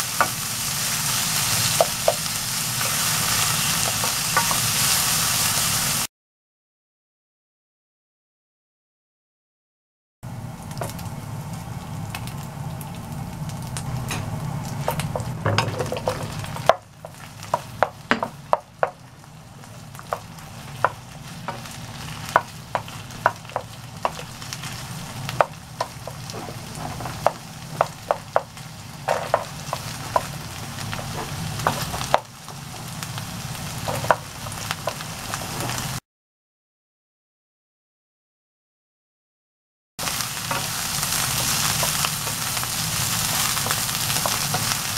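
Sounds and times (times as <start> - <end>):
meat sizzling in a frying pan: 0.0 - 6.1, 10.6 - 36.0, 40.0 - 44.9
wooden spatula knocking on pan: 15.1 - 19.0, 22.3 - 24.3, 25.4 - 28.5, 29.1 - 30.3, 31.0 - 32.3, 33.8 - 34.2.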